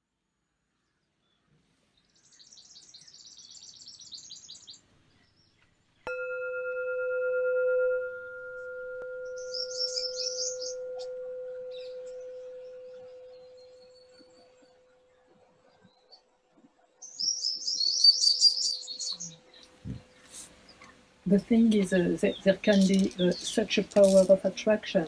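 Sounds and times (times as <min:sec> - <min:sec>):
small birds chirping: 0:00.8 - 0:06.1, 0:09.3 - 0:25.0
singing bowl ringing: 0:06.1 - 0:14.9.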